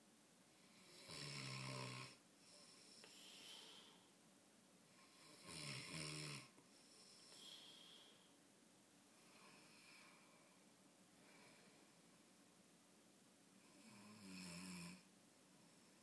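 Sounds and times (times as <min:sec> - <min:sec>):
man snoring: 0:00.7 - 0:04.0, 0:05.0 - 0:08.1, 0:13.7 - 0:15.0
breathy exhales: 0:03.0 - 0:04.1, 0:07.1 - 0:08.4.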